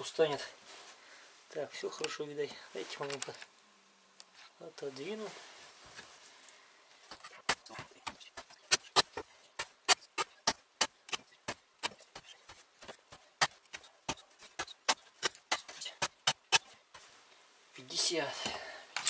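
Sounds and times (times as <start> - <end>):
axe chopping rope on wood: 7.1 - 16.8.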